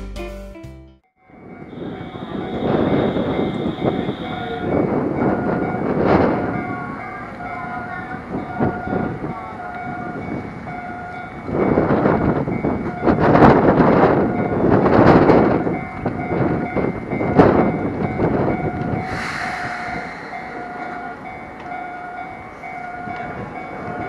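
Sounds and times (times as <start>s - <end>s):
train rumble: 1.2s - 24.0s.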